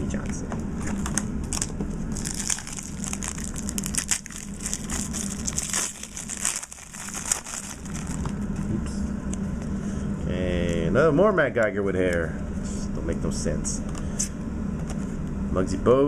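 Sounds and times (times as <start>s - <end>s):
steady low hum: 0.0s - 16.0s
foil wrapper crinkling: 1.0s - 8.7s.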